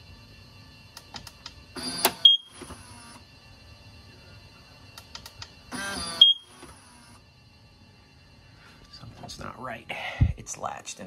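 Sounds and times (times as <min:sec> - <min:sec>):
electric latch motor running: 0:01.0 - 0:03.3, 0:05.0 - 0:07.3.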